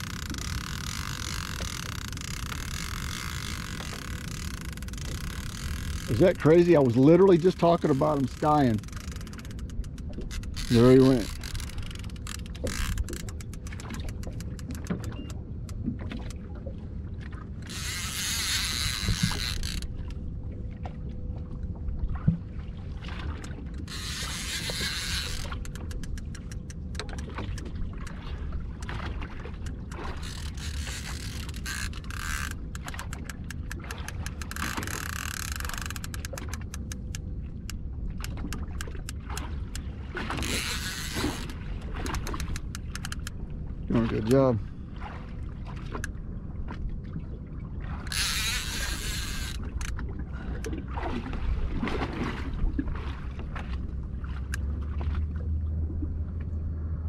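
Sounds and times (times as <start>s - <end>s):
fishing reel ticking: 0.0s - 15.8s, 17.6s - 20.2s, 23.4s - 28.2s, 29.6s - 39.8s, 40.4s - 43.4s, 48.0s - 50.0s.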